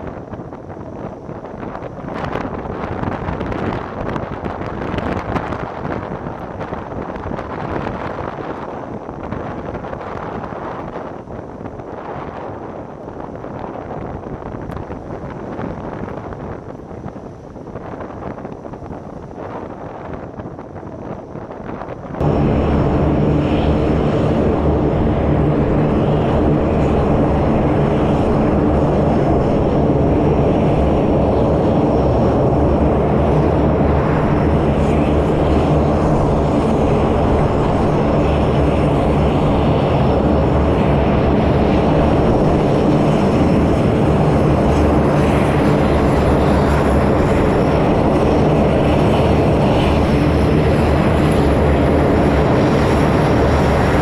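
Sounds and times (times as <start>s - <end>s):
turboprop aircraft engines droning: 0.0s - 54.0s.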